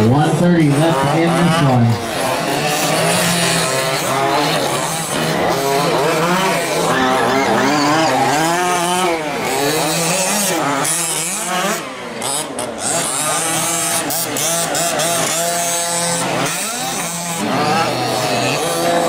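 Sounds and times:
small two-stroke engines revving: 0.0s - 19.0s.

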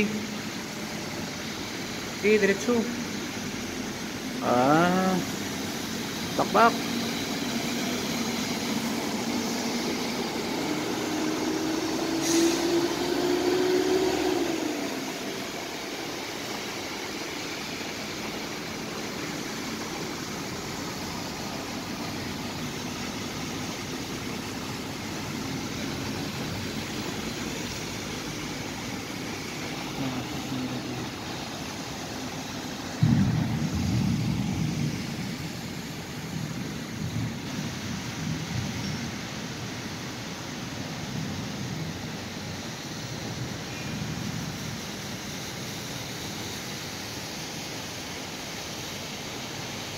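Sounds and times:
water washing: 0.0s - 43.6s
vehicle engines: 0.0s - 43.8s.

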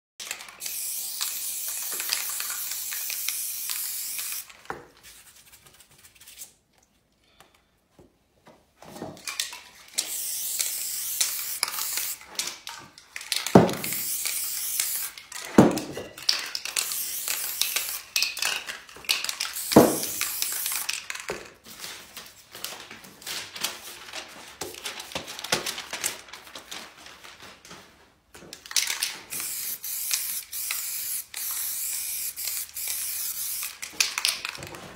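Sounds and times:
spray can hissing: 0.6s - 4.5s, 10.0s - 12.2s, 13.4s - 15.2s, 16.7s - 18.5s, 19.2s - 21.0s, 29.3s - 34.0s.

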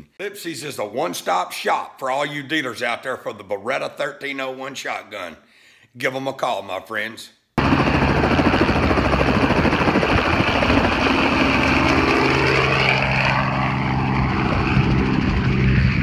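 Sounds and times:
helicopter flying overhead: 7.6s - 16.0s.

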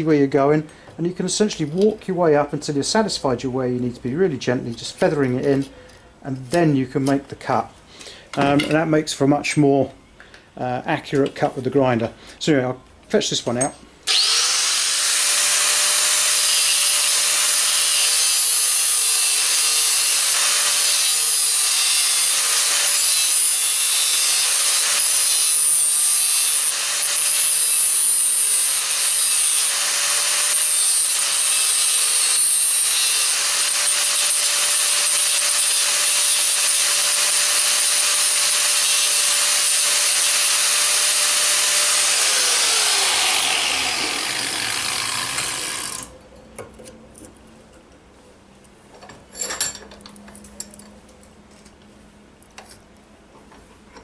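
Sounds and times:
angle grinder cutting steel: 14.1s - 46.1s
grinder spinning down: 14.1s - 46.1s.

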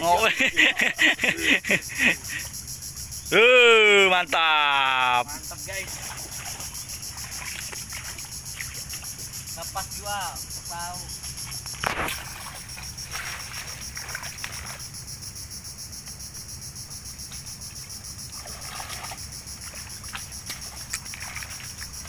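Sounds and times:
insects chorus: 0.0s - 22.0s
water and mud sloshing: 3.4s - 15.2s, 17.6s - 22.0s.

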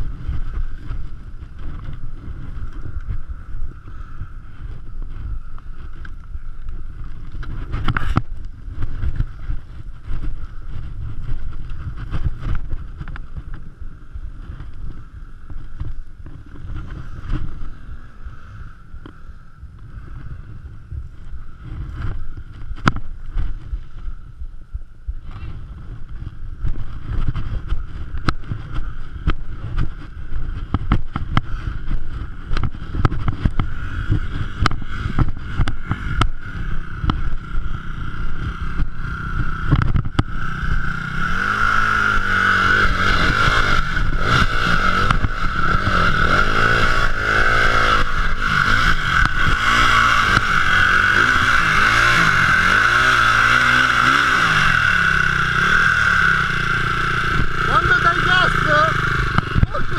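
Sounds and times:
dirt bike engine revving: 26.9s - 59.9s.

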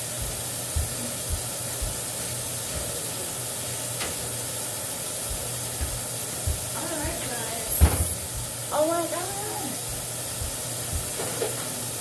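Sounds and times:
soft low thumps: 0.0s - 2.1s, 5.2s - 8.7s, 9.8s - 11.2s
steady hiss: 0.0s - 12.0s.

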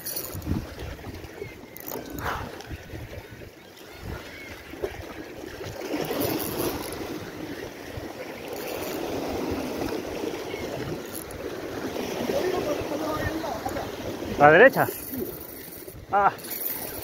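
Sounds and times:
surf breaking on rocks: 11.6s - 15.0s.

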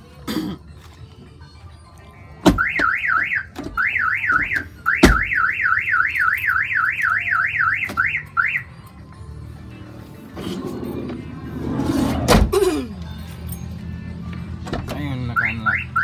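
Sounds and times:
car alarm siren warbling: 2.6s - 8.7s, 15.4s - 16.0s.

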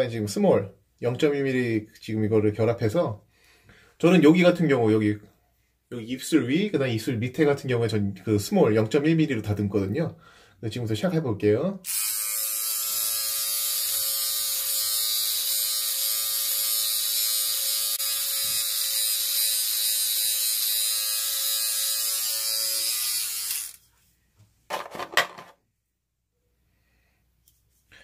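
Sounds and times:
electric trimmer buzzing: 11.9s - 23.8s.

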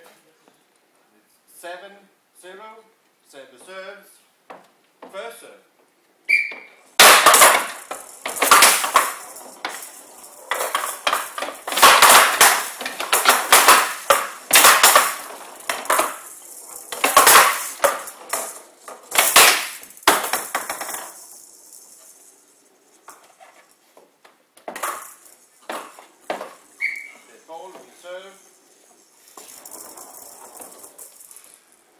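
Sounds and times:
rattling ball struck by wooden bats: 6.5s - 22.0s, 24.6s - 28.1s
ball clattering against wooden walls: 6.5s - 31.8s.

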